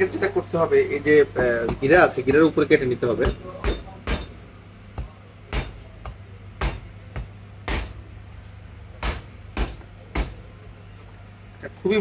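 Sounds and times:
cleaver chopping meat on board: 0:05.0 - 0:08.0, 0:09.0 - 0:10.4.

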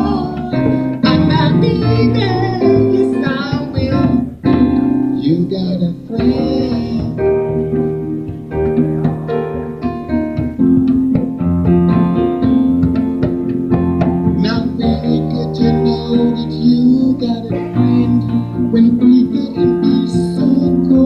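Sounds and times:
electric keyboard chords: 0:00.0 - 0:21.0
tabla drums: 0:06.2 - 0:18.4.

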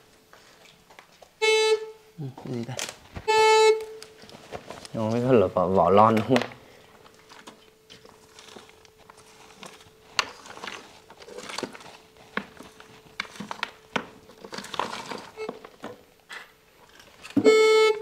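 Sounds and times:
metal detector hum: 0:05.0 - 0:15.8
rubble clicking and crinkling: 0:06.0 - 0:17.4.

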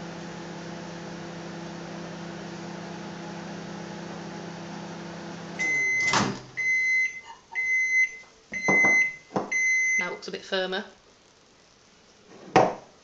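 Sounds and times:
microwave oven humming: 0:00.0 - 0:10.0
high microwave beeps: 0:05.6 - 0:10.2
microwave door opening clunk: 0:06.0 - 0:06.5.

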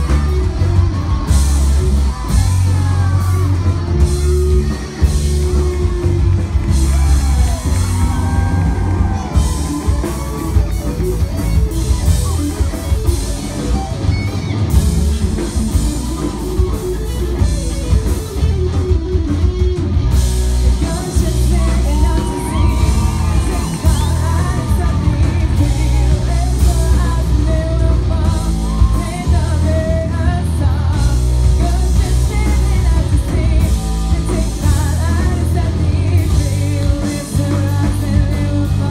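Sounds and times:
bass guitar: 0:00.0 - 0:38.9
drum kit: 0:00.0 - 0:38.9
electric guitars: 0:00.0 - 0:38.9
person singing: 0:20.6 - 0:38.9.

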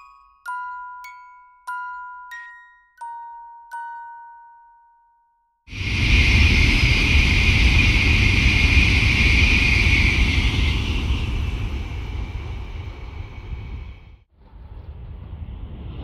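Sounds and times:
high-speed train passing: 0:05.7 - 0:14.3.

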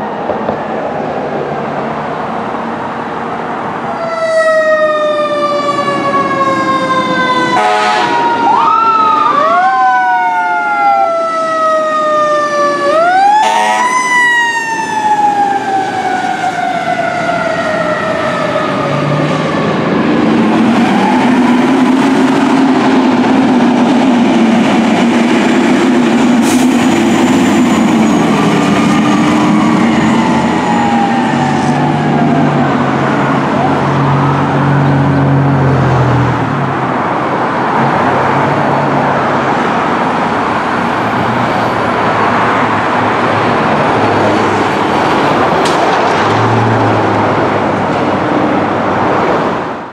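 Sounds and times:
fire truck sirens wailing: 0:00.0 - 0:49.9
air horn blasts: 0:07.5 - 0:08.3, 0:13.4 - 0:14.0.

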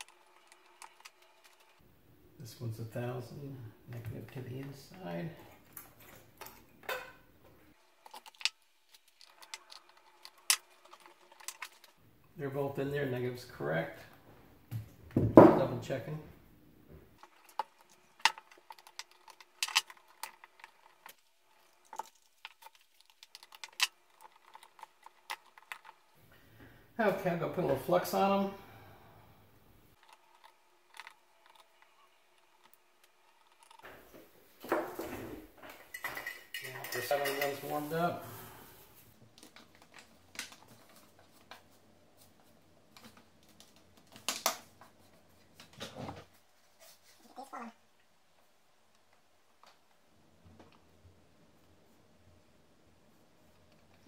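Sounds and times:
tool clatter: 0:34.6 - 0:37.9.

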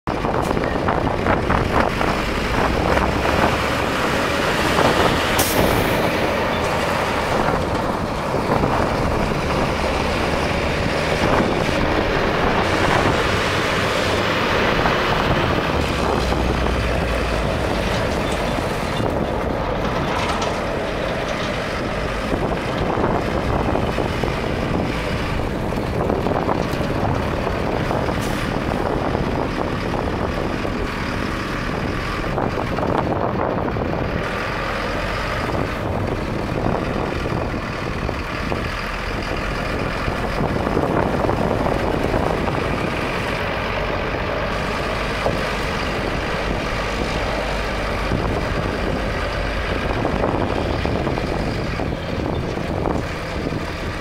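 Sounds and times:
diesel truck engine running: 0:00.0 - 0:54.0
tyres rolling over gravel: 0:00.8 - 0:33.2.

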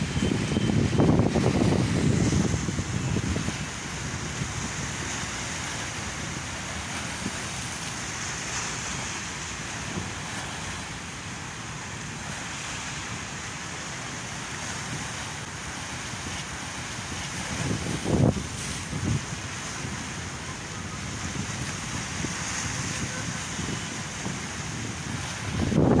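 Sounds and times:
wind on microphone: 0:00.0 - 0:05.8, 0:17.3 - 0:26.0
surf washing over rocks: 0:00.0 - 0:26.0.

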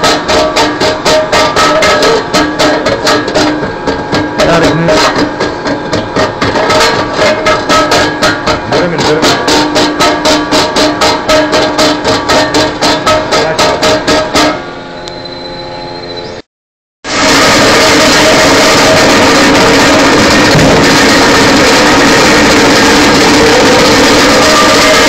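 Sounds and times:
plucked string notes: 0:01.3 - 0:14.6.

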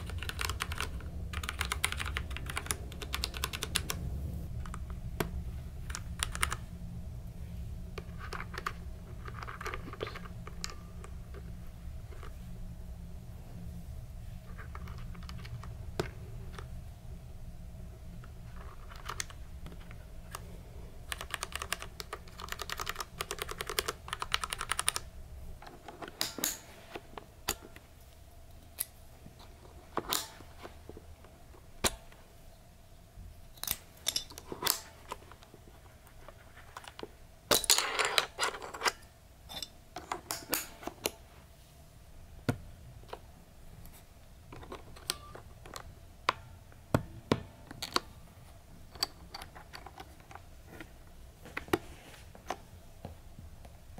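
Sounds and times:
mechanical keyboard clacking: 0:00.0 - 0:04.0, 0:05.8 - 0:06.6, 0:21.1 - 0:25.1.

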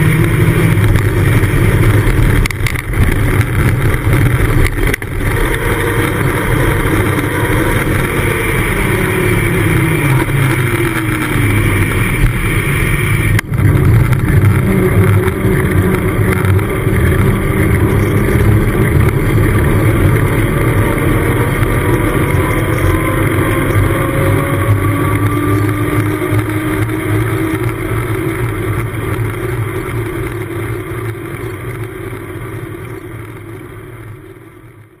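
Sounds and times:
wind rush: 0:00.0 - 0:27.8
bicycle tyre roar on tarmac: 0:00.0 - 0:35.0.

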